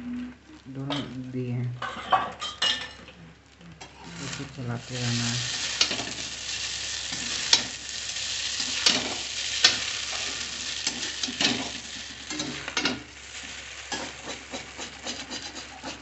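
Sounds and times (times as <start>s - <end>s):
noodles sizzling in oil: 3.7s - 16.0s
metal spatula scraping pan: 13.8s - 16.0s.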